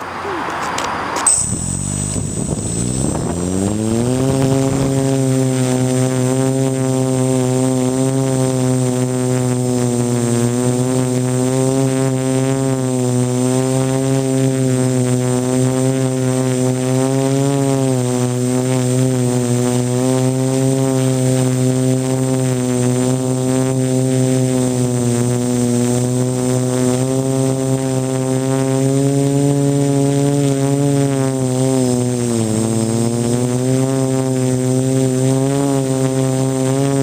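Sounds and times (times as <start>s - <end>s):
quadcopter propellers buzzing: 0.0s - 37.0s.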